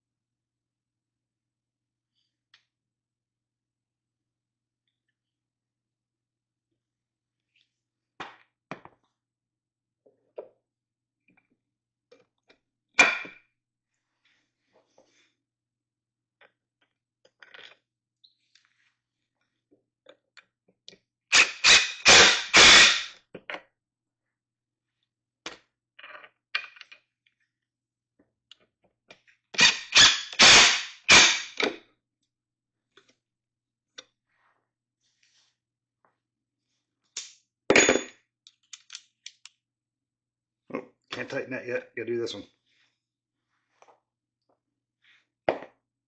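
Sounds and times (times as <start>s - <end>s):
impact driver driving a bolt: 29.6s - 31.4s.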